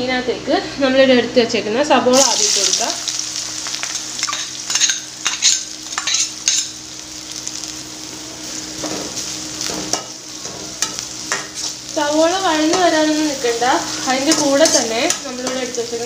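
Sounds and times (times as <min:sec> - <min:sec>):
onions sizzling in hot oil: 0:02.0 - 0:16.0.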